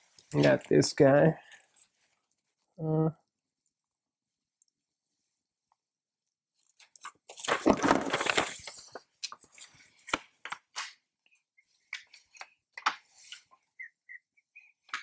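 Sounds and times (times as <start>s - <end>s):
paper sheet rustling and crackling: 6.5s - 11.0s.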